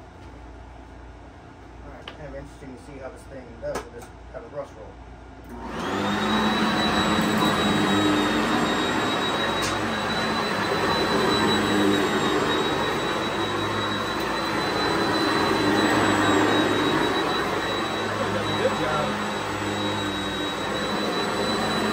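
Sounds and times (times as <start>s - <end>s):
vacuum cleaner motor whine: 5.5s - 21.9s.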